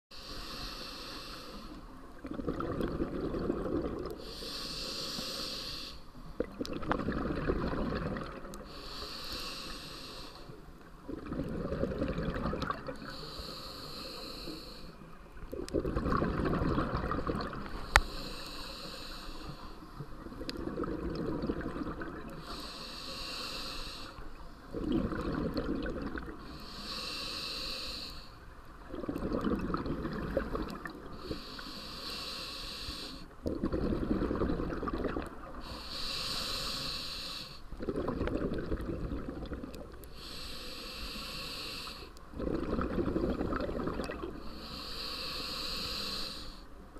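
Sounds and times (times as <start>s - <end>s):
regulator inhale hiss: 0.1s - 1.9s, 4.1s - 6.2s, 8.6s - 10.7s, 13.0s - 15.1s, 17.6s - 20.0s, 22.4s - 24.7s, 26.4s - 28.5s, 31.1s - 33.4s, 35.5s - 37.8s, 40.0s - 42.2s, 44.3s - 46.8s
bubbling exhaled air: 2.2s - 5.8s, 6.4s - 10.0s, 11.1s - 14.6s, 15.5s - 19.5s, 20.2s - 23.6s, 24.7s - 28.0s, 28.9s - 32.4s, 33.4s - 46.4s.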